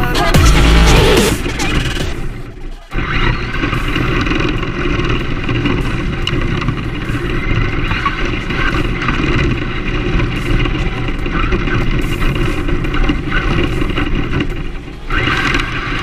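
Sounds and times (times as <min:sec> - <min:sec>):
tyres rumbling on rough asphalt: 0:00.0 - 0:16.0.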